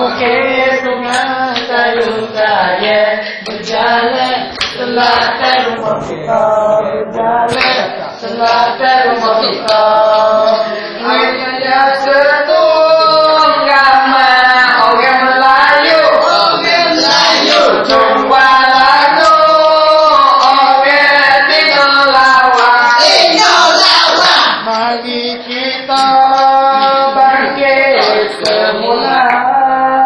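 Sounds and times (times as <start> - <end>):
crowd singing in unison: 0.0 - 30.0.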